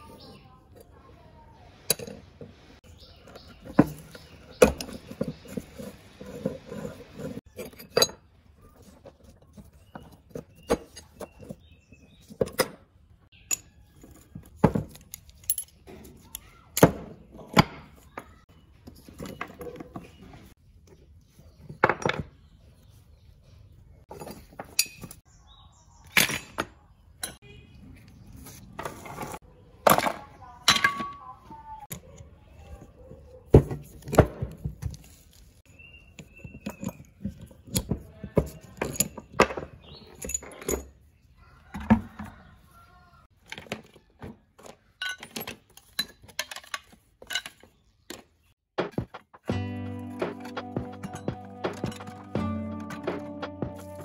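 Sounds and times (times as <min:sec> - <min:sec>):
metal tools clinking: 0:03.0 - 0:12.8, 0:13.4 - 0:16.4, 0:24.1 - 0:25.2, 0:36.1 - 0:41.1, 0:45.0 - 0:47.7
metal scraping: 0:03.3 - 0:11.5, 0:48.8 - 0:54.0.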